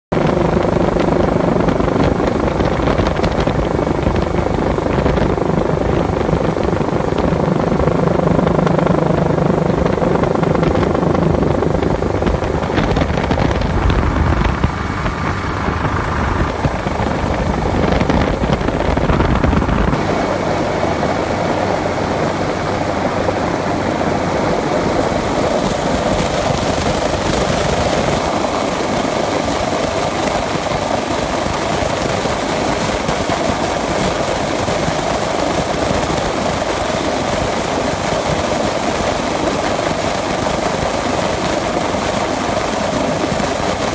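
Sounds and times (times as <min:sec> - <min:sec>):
helicopter engines and rotor: 0:00.1 - 0:43.9
high turbine whine: 0:00.1 - 0:43.9.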